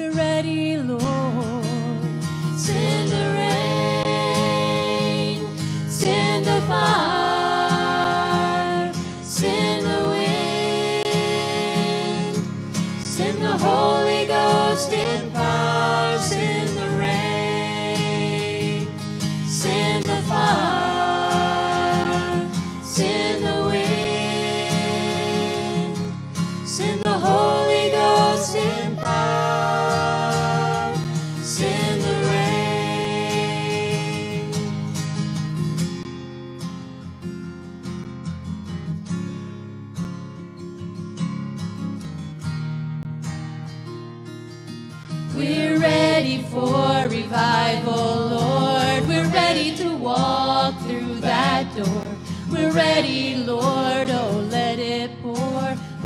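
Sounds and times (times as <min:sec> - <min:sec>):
strummed acoustic guitar: 0:00.0 - 0:56.0
people singing gospel in harmony: 0:02.2 - 0:34.9, 0:45.3 - 0:56.0.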